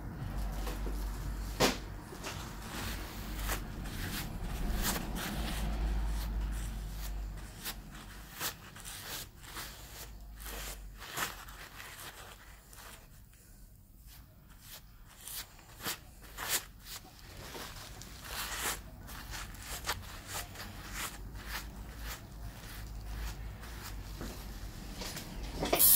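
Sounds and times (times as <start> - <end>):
paper towel rustling on skin: 0.1 - 25.4.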